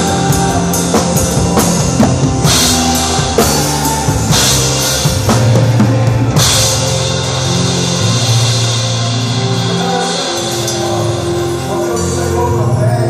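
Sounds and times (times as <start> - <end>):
band holding a chord: 0.0 - 13.0.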